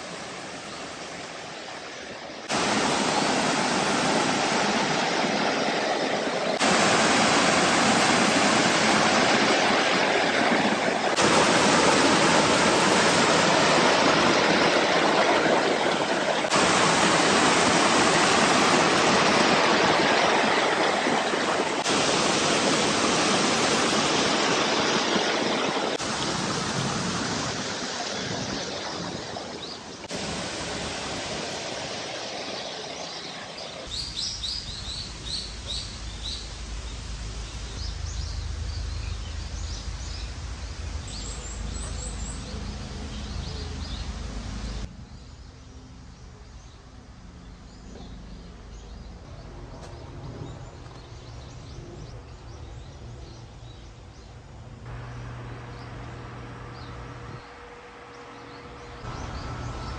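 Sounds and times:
waterfall rushing over boulders: 0.0s - 38.3s
birds chirping: 0.0s - 59.9s.

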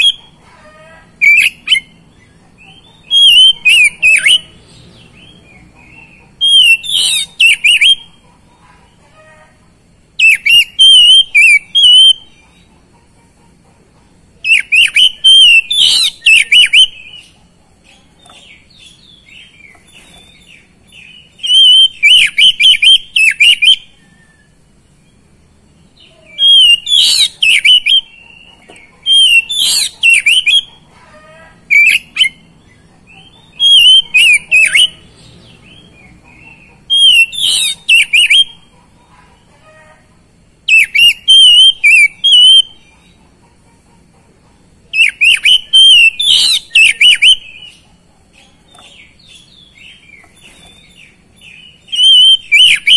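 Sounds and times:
bird singing whistled phrases: 3.1s - 4.5s, 6.4s - 8.1s, 10.2s - 12.3s, 14.4s - 17.2s, 21.4s - 24.5s, 26.3s - 28.4s, 29.1s - 30.7s, 33.6s - 35.0s, 36.9s - 38.6s, 40.7s - 42.8s, 45.0s - 47.8s, 51.9s - 52.9s.

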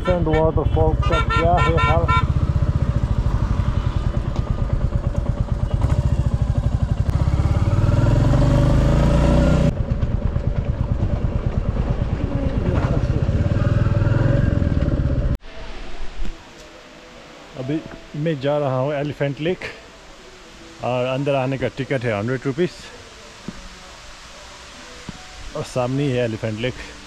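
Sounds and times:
motorcycle engine running: 0.0s - 15.4s.

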